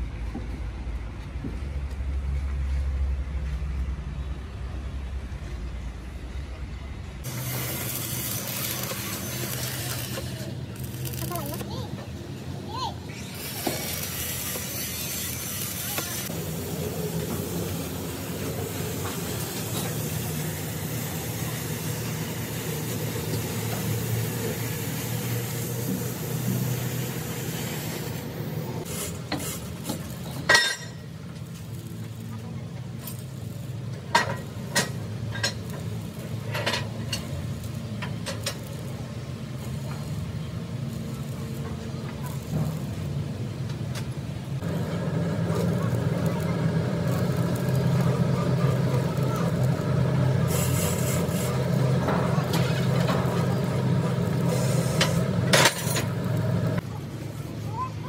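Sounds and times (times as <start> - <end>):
steady machine hum: 7.1 - 28.9, 44.4 - 56.8
metal scraping strokes: 7.3 - 11.5, 13.1 - 16.3, 50.4 - 56.5
loud even hiss: 44.6 - 56.4.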